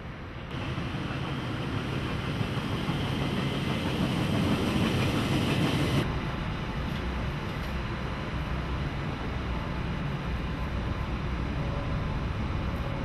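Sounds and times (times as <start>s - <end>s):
train hiss: 0.5s - 6.1s
train wheels on rails: 0.5s - 7.9s.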